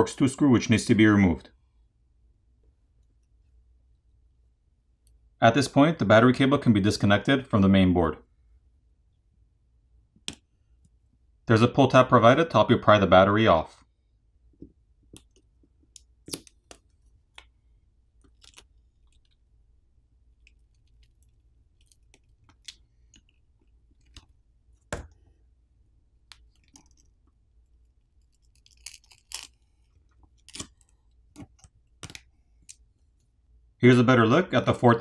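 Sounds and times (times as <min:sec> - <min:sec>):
faint clicks and crinkles: 0:14.5 - 0:19.5, 0:20.3 - 0:25.3, 0:26.2 - 0:33.4
crackles: 0:26.2 - 0:33.3.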